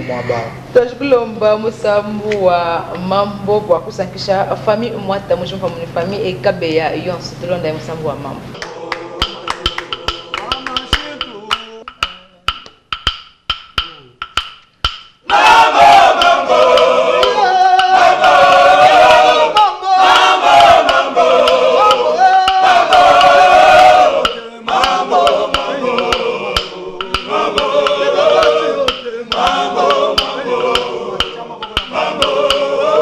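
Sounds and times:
male choir singing in harmony: 0:08.6 - 0:11.9, 0:15.3 - 0:33.0
wooden claves clicking: 0:09.2 - 0:15.4, 0:24.2 - 0:32.7.

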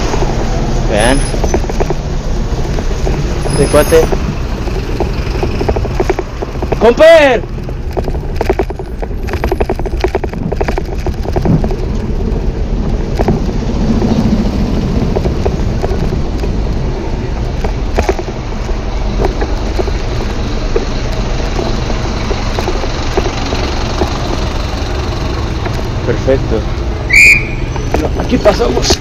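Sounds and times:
bicycle tyre noise: 0:00.0 - 0:29.0
traffic passing: 0:00.0 - 0:29.0
bike knocks and rattles: 0:01.0 - 0:12.4, 0:13.0 - 0:26.0
wind rumble on microphone: 0:07.5 - 0:26.1.

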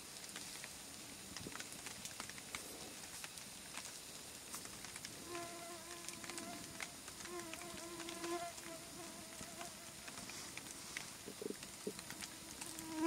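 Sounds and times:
campfire embers crackling: 0:00.0 - 0:13.0
flying insect buzzing: 0:05.2 - 0:10.3, 0:12.0 - 0:13.0.

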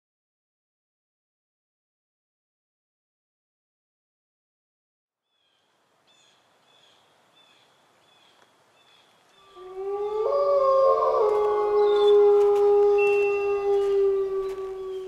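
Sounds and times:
wolves howling: 0:09.4 - 0:15.0.

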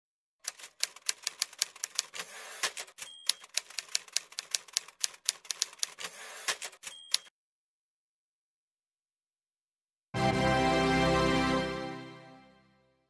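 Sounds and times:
typewriter key clacks: 0:00.5 - 0:07.3
typewriter bell ding: 0:02.9 - 0:03.8, 0:06.7 - 0:07.3.

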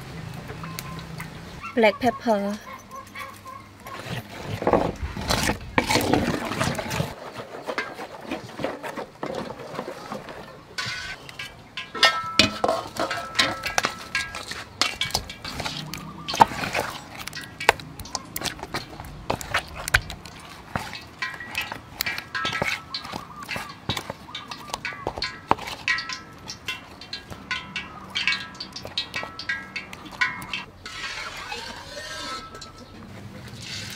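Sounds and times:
clink against metal bowl: 0:10.8 - 0:18.6, 0:21.0 - 0:30.7, 0:31.4 - 0:33.0
wet squelching of batter: 0:12.9 - 0:33.9.

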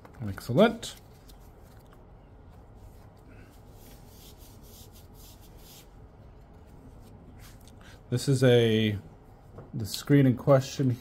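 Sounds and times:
faint rustling and rubbing: 0:00.5 - 0:07.7.

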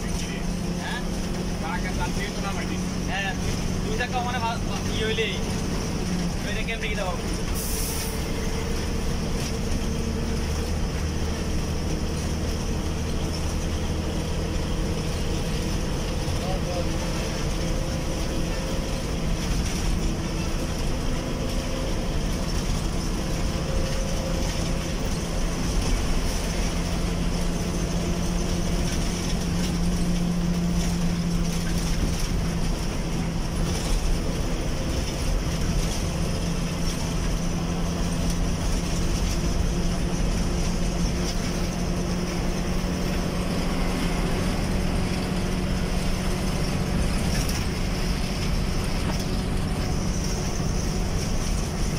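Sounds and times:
bus engine hum: 0:00.0 - 0:51.9
road rumble: 0:00.0 - 0:51.9.

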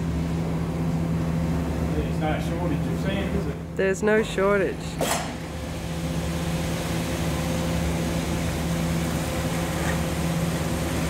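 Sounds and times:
sand mixer motor hum: 0:05.6 - 0:11.0.

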